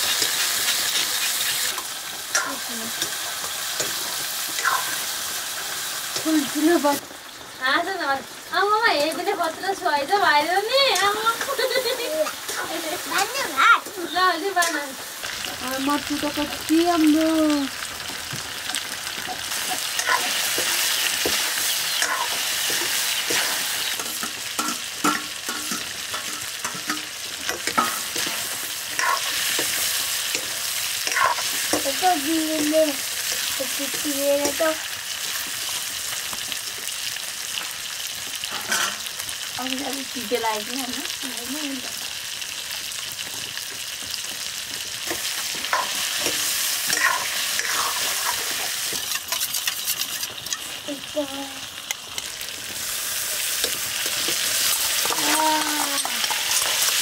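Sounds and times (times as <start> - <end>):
spoon clicking and scraping pan: 0.0 - 5.0, 19.3 - 32.0, 45.1 - 50.7, 53.4 - 57.0
food sizzling in pan: 0.0 - 57.0.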